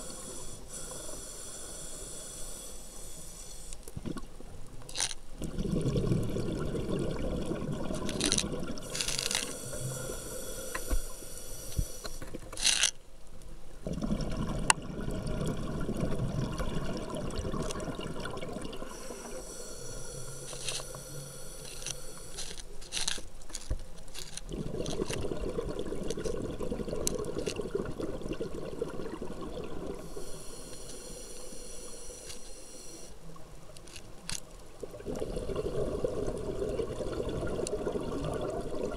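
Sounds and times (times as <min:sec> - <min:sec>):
hissing regulator inhales: 0:00.0 - 0:03.9, 0:08.8 - 0:12.3, 0:18.9 - 0:23.1, 0:30.0 - 0:33.2
exhaled bubbles rushing: 0:05.4 - 0:08.9, 0:13.8 - 0:19.0, 0:24.5 - 0:30.1, 0:34.8 - 0:38.9.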